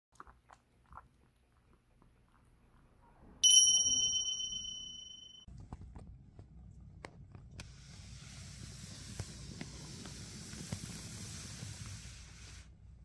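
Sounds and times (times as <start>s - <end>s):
kitten lapping milk: 0.1s - 2.8s
bright bell ding: 3.4s - 5.5s.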